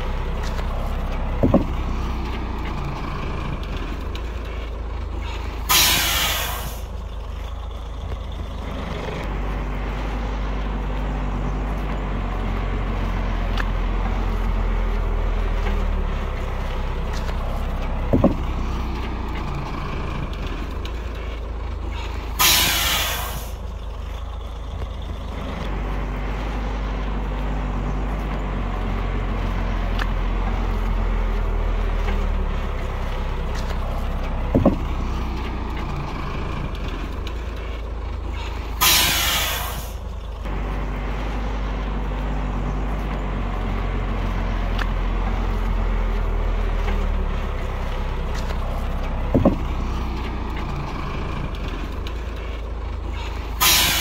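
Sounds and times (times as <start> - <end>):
heavy diesel engines running: 0.0 - 54.0
air brake hissing: 5.2 - 7.0, 22.0 - 23.7, 38.4 - 40.1, 53.2 - 54.0.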